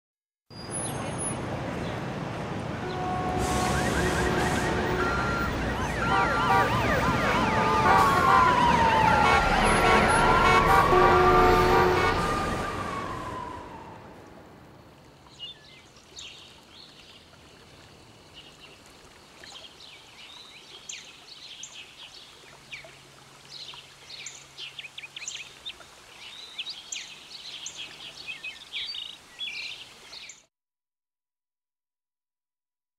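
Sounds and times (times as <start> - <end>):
city traffic: 0.5 - 15.3
car horns honking: 2.8 - 13.0
siren wailing: 2.9 - 14.2
birds chirping: 23.5 - 30.5.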